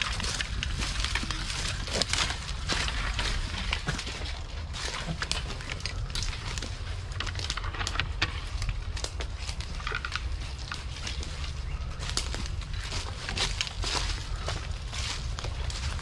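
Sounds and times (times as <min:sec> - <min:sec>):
footsteps crunching dry leaves: 0:00.0 - 0:16.0
steady low rumble: 0:00.0 - 0:16.0.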